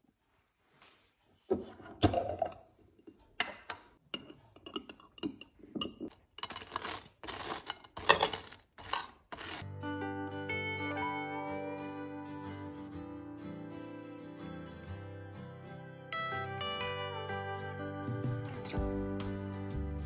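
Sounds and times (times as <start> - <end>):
knife scraping jam on toast: 6.4 - 9.6
guitar music: 9.6 - 20.0.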